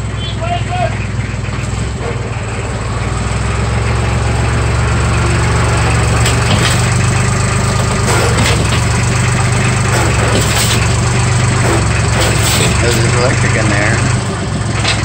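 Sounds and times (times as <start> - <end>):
tractor engine running: 0.0 - 15.0
sharp knocks: 6.1 - 13.6.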